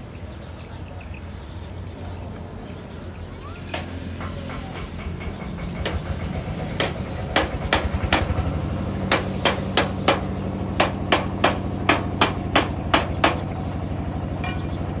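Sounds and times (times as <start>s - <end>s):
sharp knocks: 3.7s - 8.4s, 9.1s - 13.5s.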